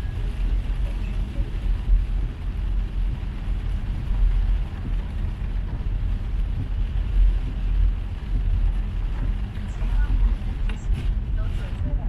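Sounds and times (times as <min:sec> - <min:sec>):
car road and engine noise: 0:00.0 - 0:12.0
rain hiss: 0:00.0 - 0:12.0.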